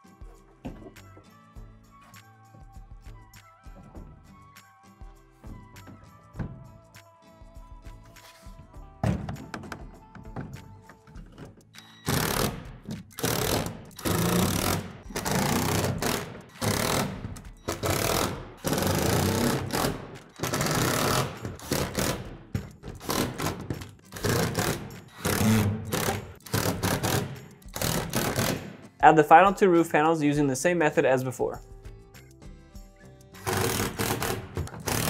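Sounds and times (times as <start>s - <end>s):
impact driver driving screws: 11.8s - 28.8s, 33.4s - 35.0s.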